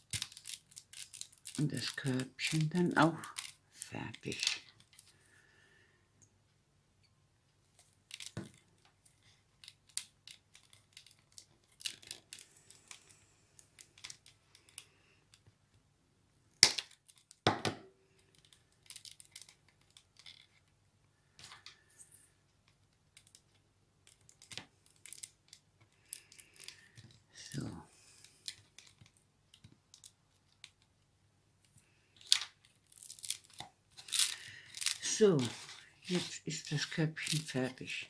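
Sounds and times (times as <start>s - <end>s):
hands clicking and rustling paper: 0.0s - 5.1s, 8.0s - 15.5s, 22.6s - 31.0s, 31.6s - 38.0s.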